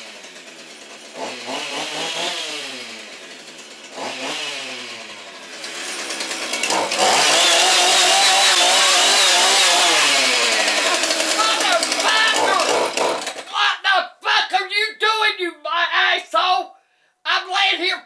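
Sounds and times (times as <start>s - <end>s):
chainsaw engine revving: 0.0s - 13.6s.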